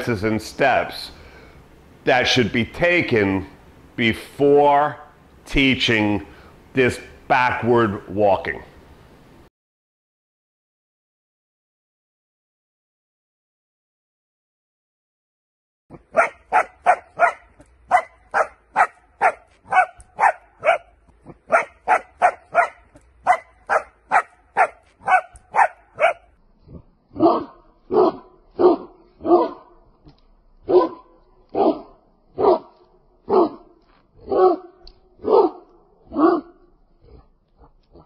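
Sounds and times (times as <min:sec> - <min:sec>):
young dog barking: 0:16.1 - 0:26.3, 0:27.2 - 0:29.7, 0:30.7 - 0:32.7, 0:33.3 - 0:36.6.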